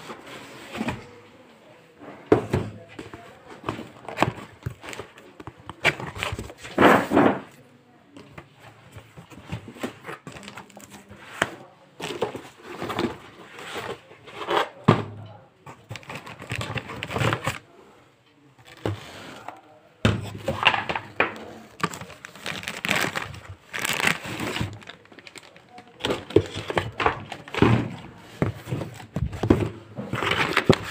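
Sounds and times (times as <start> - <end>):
plastic wrapping crinkling: 21.4 - 27.6.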